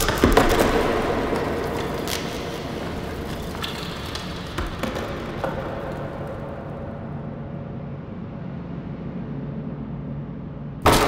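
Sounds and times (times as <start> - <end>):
rumbling crackling noise: 0.0 - 7.9.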